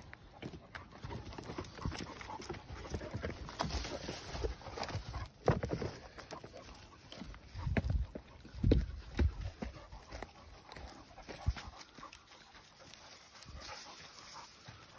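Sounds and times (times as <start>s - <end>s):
footsteps over logs: 0.0s - 14.9s
dog paws scuffing: 0.4s - 14.9s
rustling through ferns: 2.8s - 7.6s, 9.6s - 14.9s.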